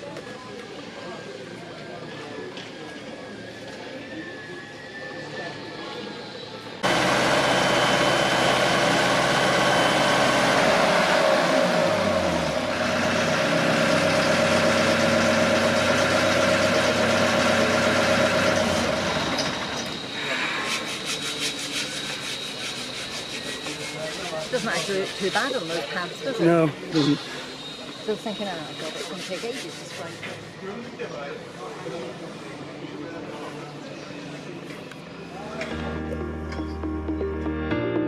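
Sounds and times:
travel lift engine running: 0:03.3 - 0:23.8.

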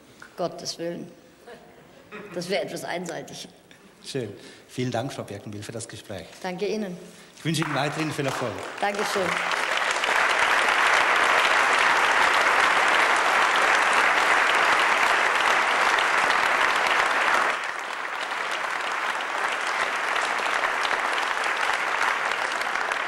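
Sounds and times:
audience applauding: 0:07.5 - 0:23.0.

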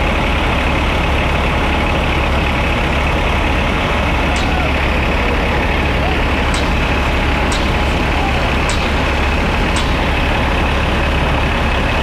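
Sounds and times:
fire engine rumble: 0:00.0 - 0:12.0.

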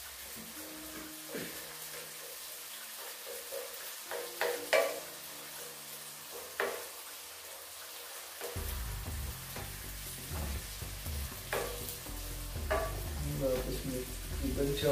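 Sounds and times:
onions sizzling in butter: 0:00.0 - 0:14.9
spatula knocking against pan: 0:03.4 - 0:05.0, 0:11.5 - 0:11.8, 0:12.7 - 0:13.1.

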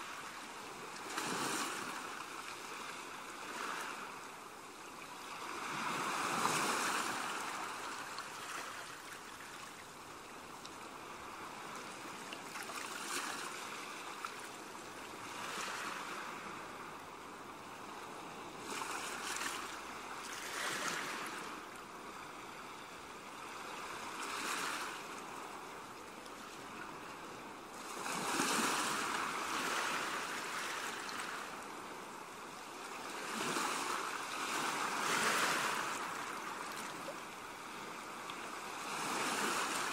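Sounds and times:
ocean waves washing: 0:05.1 - 0:09.0.

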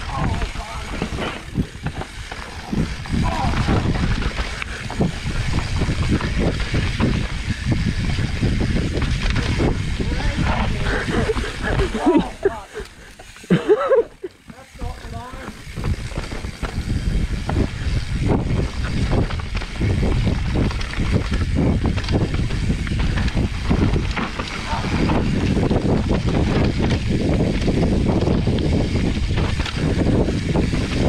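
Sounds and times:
wind rushing over microphone: 0:00.0 - 0:13.6, 0:14.8 - 0:31.0
bike rattling over bumps: 0:00.0 - 0:31.0.

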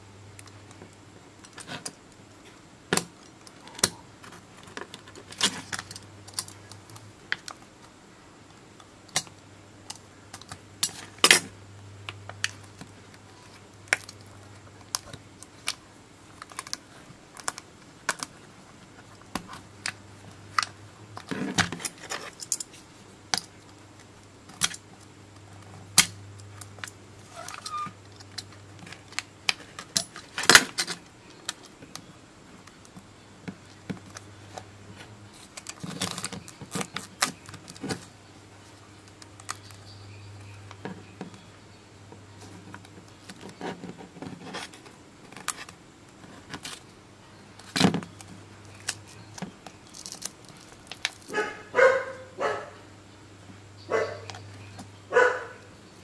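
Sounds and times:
foil pouch crinkling and crackling: 0:12.3 - 0:25.1, 0:35.3 - 0:41.4, 0:47.6 - 0:51.7.

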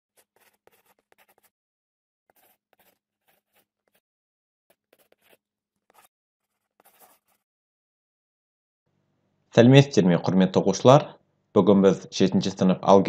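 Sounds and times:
marker scribbling: 0:00.1 - 0:01.6, 0:02.3 - 0:04.0, 0:04.7 - 0:07.5.

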